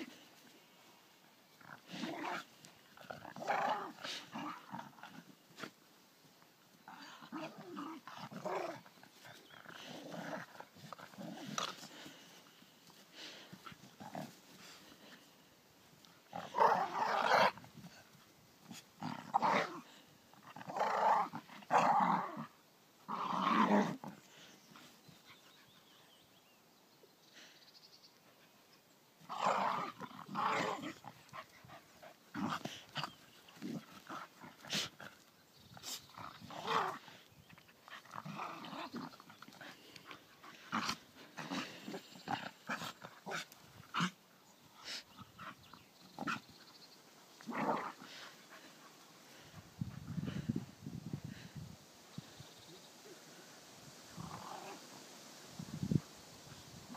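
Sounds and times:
dogs growling in play: 1.5s - 5.8s, 6.8s - 15.3s, 15.9s - 25.8s, 29.2s - 50.7s, 54.1s - 55.0s.

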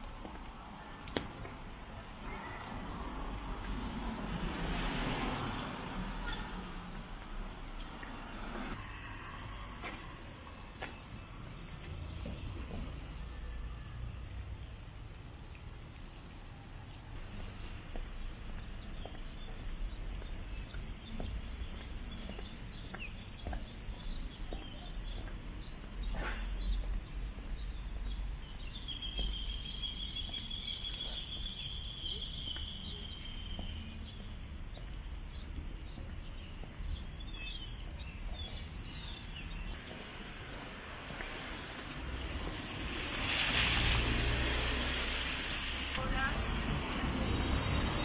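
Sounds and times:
bird chirps: 27.6s - 39.9s.

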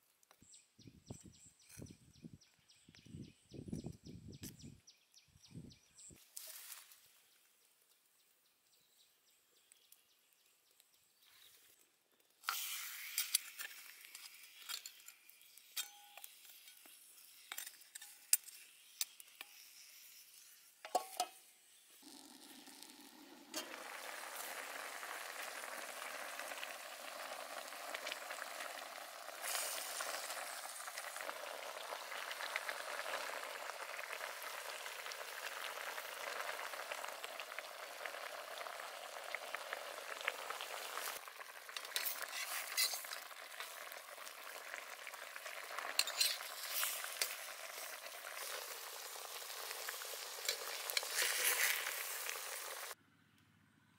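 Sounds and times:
sizzling simmer: 5.9s - 53.0s
wok sizzling and crackling: 12.4s - 53.0s
metal lid clinking: 20.8s - 21.4s, 46.0s - 46.6s.

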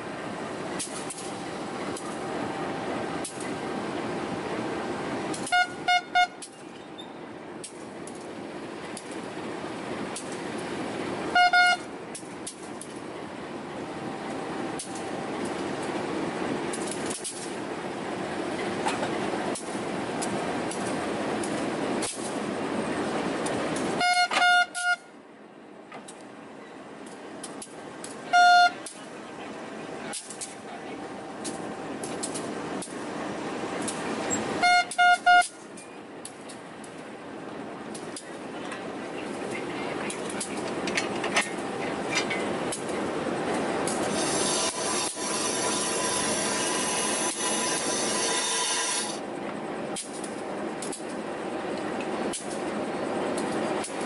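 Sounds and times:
train horn toots: 5.4s - 6.4s, 11.3s - 11.9s, 24.0s - 25.1s, 28.3s - 28.9s, 34.6s - 35.6s.

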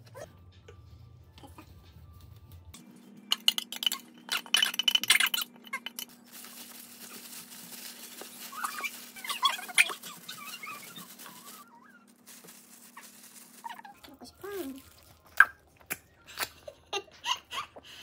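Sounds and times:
small squeaks: 8.1s - 14.0s.

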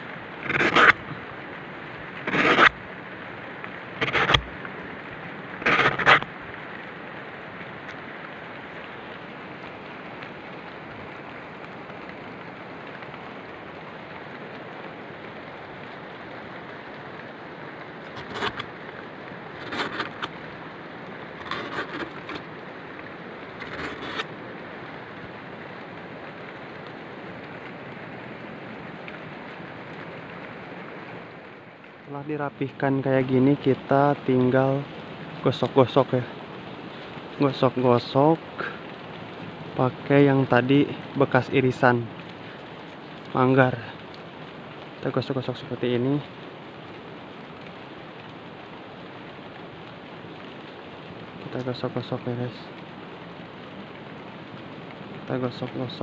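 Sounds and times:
steady rushing hiss: 0.0s - 56.0s
knife scraping plant stalk: 0.4s - 1.1s, 2.3s - 2.8s, 4.0s - 4.6s, 5.6s - 6.2s, 18.1s - 18.6s, 19.6s - 20.3s.

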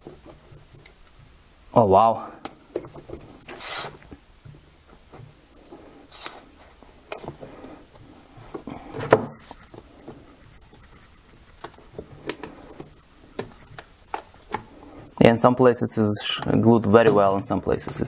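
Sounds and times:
rubber shell rubbing and clicking: 9.4s - 15.2s.

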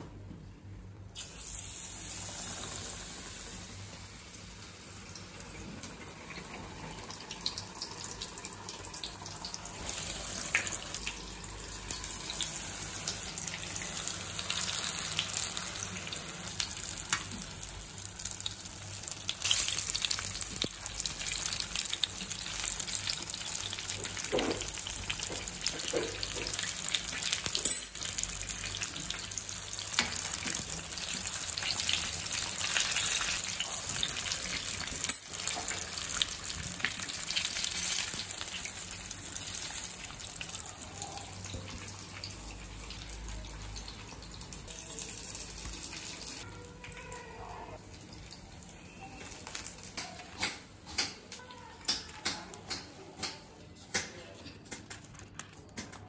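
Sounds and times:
food sizzling in hot oil: 1.2s - 46.5s, 47.2s - 50.9s.

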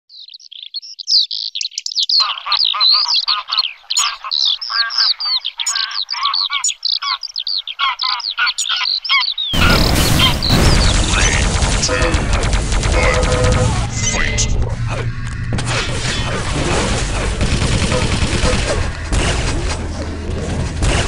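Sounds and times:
songbirds chirping and whistling: 0.1s - 12.0s
sudden loud noise: 9.6s - 19.8s.

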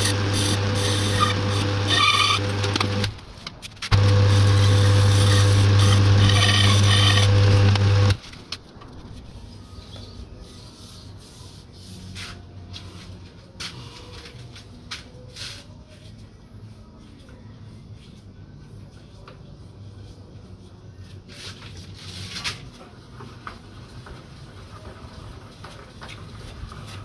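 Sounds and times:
file rasping on spinning disc: 0.0s - 3.1s, 4.0s - 8.2s
lathe motor hum: 0.0s - 3.1s, 3.9s - 8.2s.

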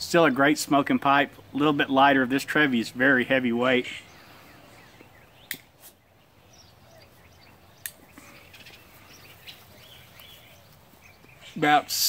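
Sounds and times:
faint bird chirps: 3.9s - 11.8s
short sharp clicks: 5.4s - 5.7s.

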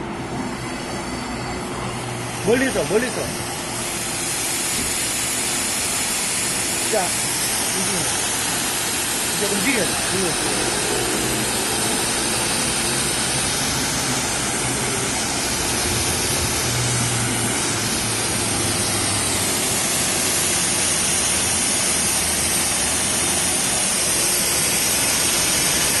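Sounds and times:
pressure washer spraying car: 0.0s - 26.0s.

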